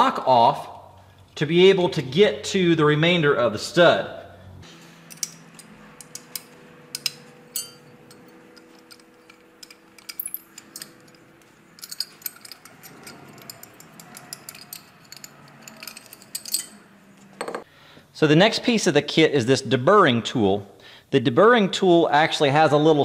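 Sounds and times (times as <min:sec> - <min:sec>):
ratcheting wrench clicking: 0:05.1 - 0:16.8
sharp metal clinks: 0:05.1 - 0:16.9.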